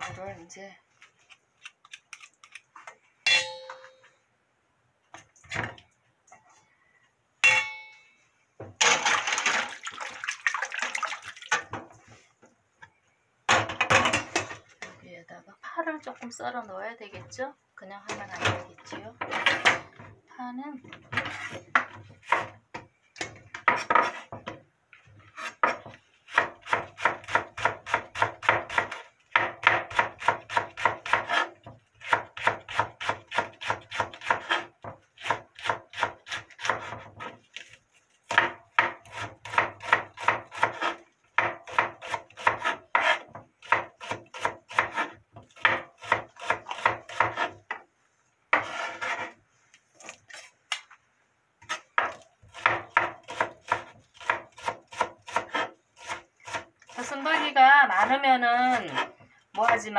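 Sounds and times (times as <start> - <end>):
knife chopping on wooden board: 25.4 - 37.4, 38.3 - 47.7, 51.6 - 56.7.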